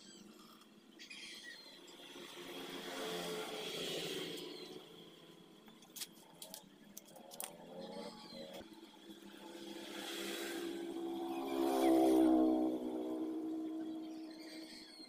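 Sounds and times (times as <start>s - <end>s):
motor vehicle passing by: 1.8s - 5.6s, 7.3s - 15.0s.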